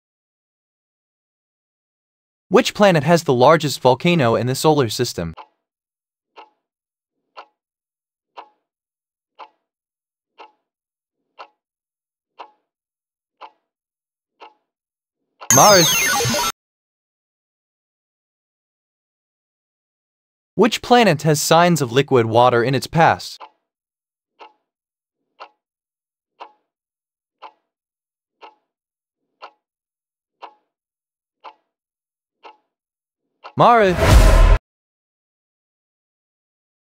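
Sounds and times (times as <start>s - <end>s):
clock ticks: 4.6s - 5.5s, 7.4s - 7.6s, 9.4s - 9.6s, 10.4s - 10.6s, 11.4s - 11.6s, 12.4s - 12.6s, 23.4s - 23.6s, 25.4s - 25.6s, 27.4s - 27.6s, 28.4s - 28.6s, 29.4s - 29.6s, 30.4s - 30.6s, 31.4s - 31.6s, 32.4s - 32.6s.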